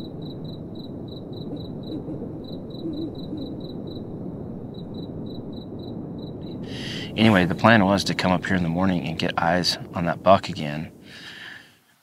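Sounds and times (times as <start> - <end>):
cricket chirping: 0.0 - 11.1
low steady rumble: 0.0 - 11.1.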